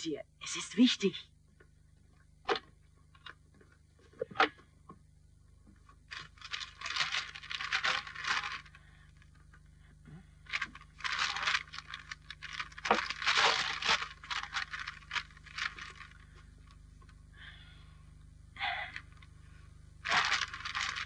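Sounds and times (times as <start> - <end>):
low steady hum: 0.0 - 21.0
newspaper rustling and crackling: 5.9 - 9.5, 10.4 - 16.8, 20.0 - 21.0.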